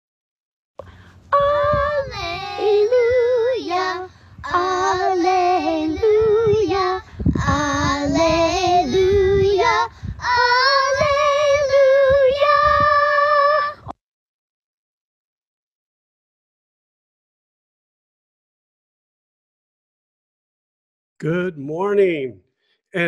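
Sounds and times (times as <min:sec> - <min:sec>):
children singing: 0:01.4 - 0:13.8.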